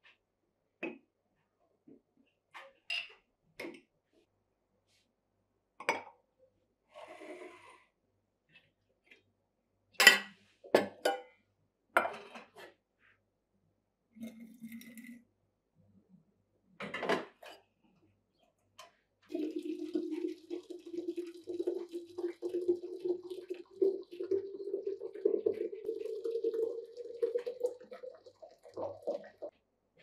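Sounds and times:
tea pouring into carafe: 14.2s - 15.2s, 19.3s - 29.5s.

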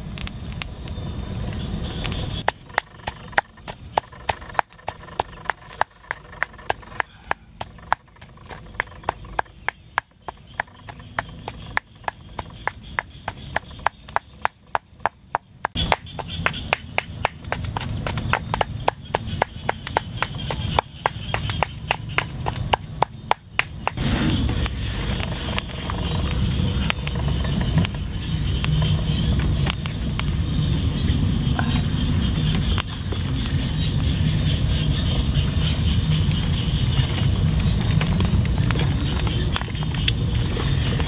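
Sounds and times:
pestle pounding in mortar: 2.4s - 24.0s
low rushing noise: 23.8s - 38.6s.

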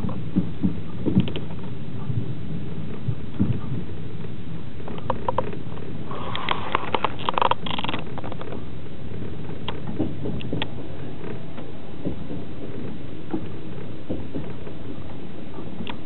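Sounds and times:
sharp clicks and rattles: 0.0s - 1.8s, 2.9s - 16.0s
train wheels rumbling on track: 0.0s - 16.0s.

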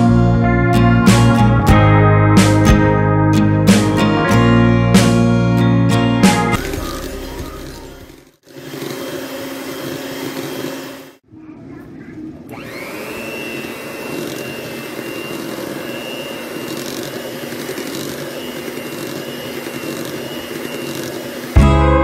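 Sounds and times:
electric hand mixer running: 6.6s - 11.2s, 12.5s - 22.0s
high motor whine: 12.5s - 21.6s.

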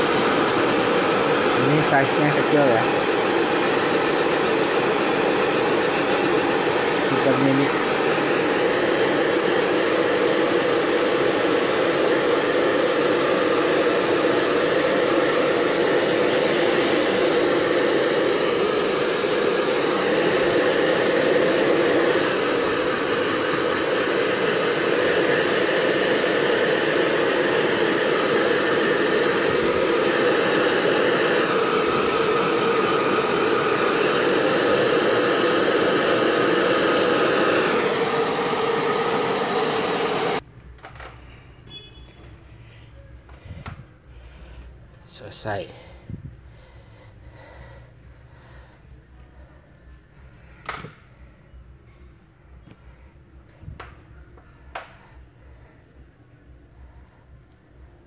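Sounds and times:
hair dryer blowing: 0.0s - 40.4s, 52.7s - 58.0s.

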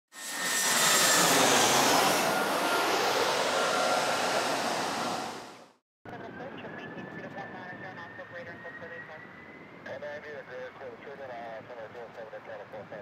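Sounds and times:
faint high whining tones: 0.2s - 5.6s, 6.5s - 11.0s
loud rushing roar: 0.2s - 5.8s.

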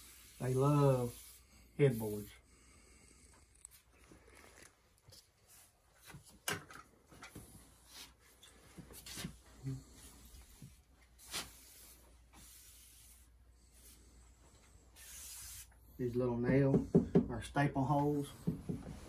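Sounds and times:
sprayer hose scraping and rubbing: 0.0s - 2.3s, 7.7s - 15.8s.

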